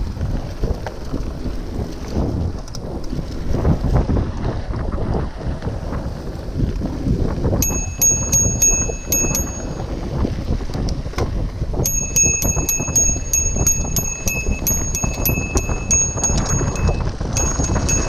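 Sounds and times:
bike rattling on dirt trail: 0:00.0 - 0:18.0
wind buffeting microphone: 0:00.0 - 0:18.0
bicycle bell ringing: 0:07.6 - 0:10.0, 0:11.8 - 0:18.0.

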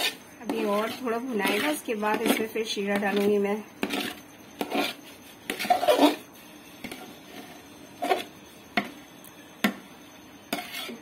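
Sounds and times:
metal ladle scraping pot: 0:00.0 - 0:08.3, 0:10.5 - 0:11.0.

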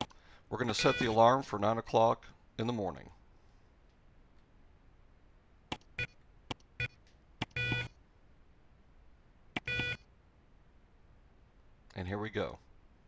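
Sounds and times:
alarm clock buzzer beeping: 0:00.7 - 0:01.2, 0:06.8 - 0:07.9, 0:09.6 - 0:10.0
button clicks: 0:05.7 - 0:07.9.

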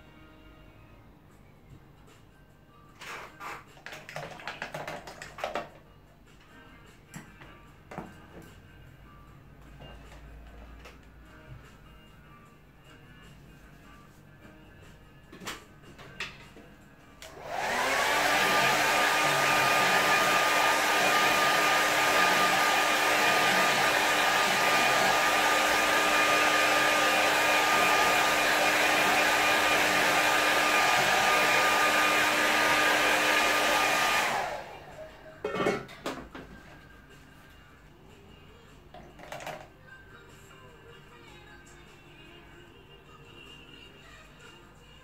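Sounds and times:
hair dryer blowing: 0:17.2 - 0:35.2.

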